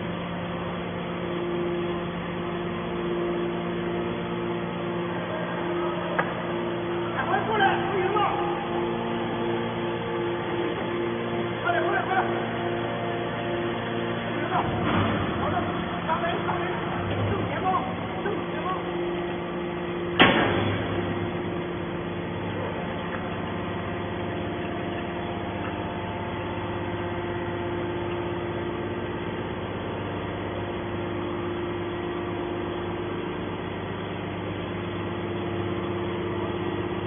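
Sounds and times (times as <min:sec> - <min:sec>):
hydraulic power unit humming: 0:00.0 - 0:37.0
sharp bang: 0:20.2 - 0:21.1.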